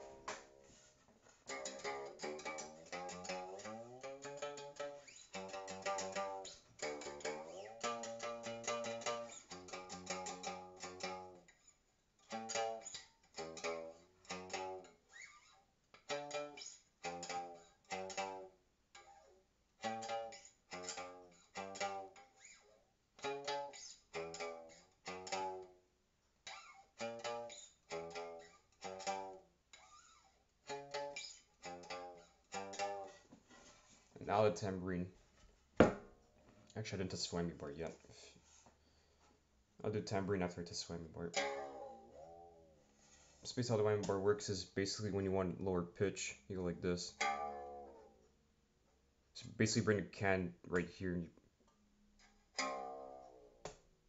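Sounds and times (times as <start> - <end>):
one-string instrument plucked: 1.5 - 11.4, 12.3 - 14.9, 16.0 - 18.5, 19.8 - 22.2, 23.2 - 25.7, 26.6 - 29.9, 30.7 - 33.7, 41.0 - 42.8, 47.0 - 48.3, 52.6 - 53.8.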